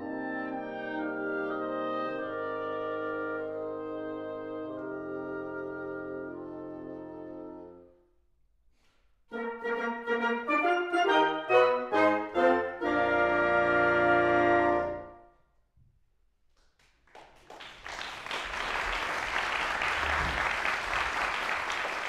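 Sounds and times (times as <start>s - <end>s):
wind ensemble playing chords: 0.0s - 8.0s, 9.3s - 15.3s
audience applause: 16.8s - 22.0s.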